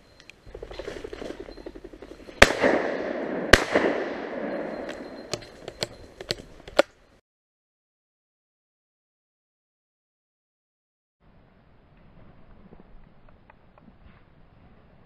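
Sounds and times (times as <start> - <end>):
dense rustling: 0.5 - 2.5
shotgun shots with echo: 2.4 - 5.6.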